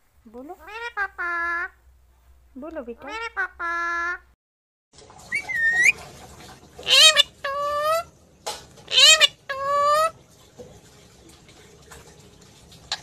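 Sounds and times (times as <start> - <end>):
parakeet calling: 0.6 - 1.7, 3.0 - 3.9, 5.3 - 6.0, 6.8 - 8.1, 8.9 - 10.1.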